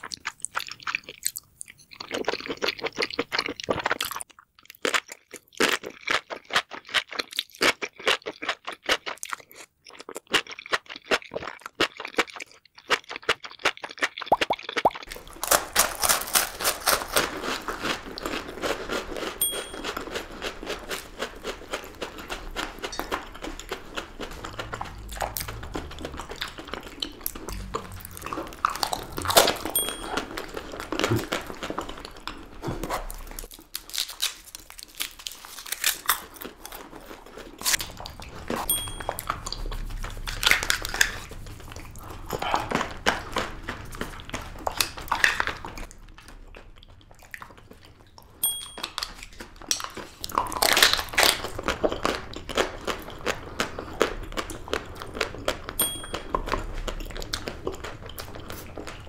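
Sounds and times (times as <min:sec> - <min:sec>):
crunching and chewing: 0:00.0 - 0:59.0
wrapper crinkling: 0:15.1 - 0:18.1, 0:33.1 - 0:36.8.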